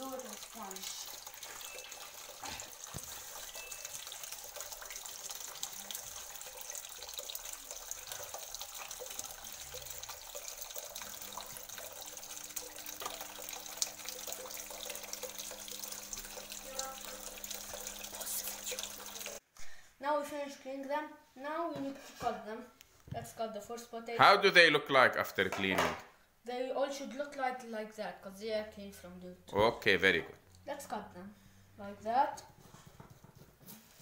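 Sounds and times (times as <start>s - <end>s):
tap running into bowl: 1.1s - 19.4s.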